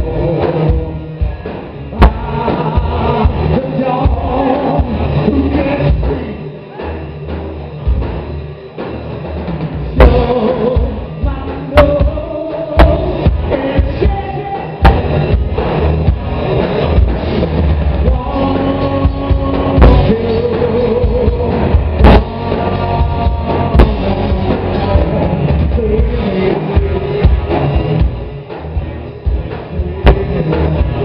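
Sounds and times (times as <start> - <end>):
man singing lead: 0.0 - 7.2, 10.0 - 15.2, 18.0 - 28.2, 29.5 - 31.0
bass guitar: 0.0 - 31.0
drum kit: 0.0 - 31.0
electric guitars: 0.0 - 31.0
sharp drum hits: 14.8 - 15.5.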